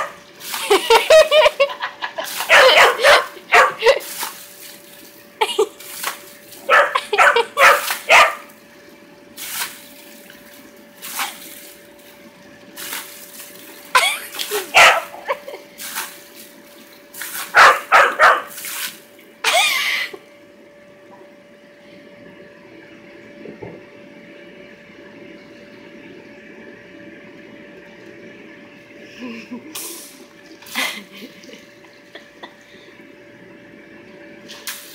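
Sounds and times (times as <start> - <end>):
water spraying: 0.0 - 8.6, 9.3 - 20.1, 29.6 - 31.6, 34.4 - 34.9
dog barking: 2.4 - 3.9, 6.6 - 8.5, 14.8 - 15.2, 17.5 - 18.6
air blower hum and hiss: 28.2 - 31.6.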